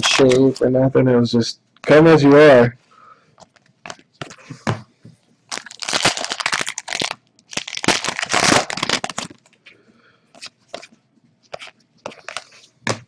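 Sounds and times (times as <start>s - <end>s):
cards rustling as flipped through: 5.5s - 9.6s, 10.4s - 13.0s.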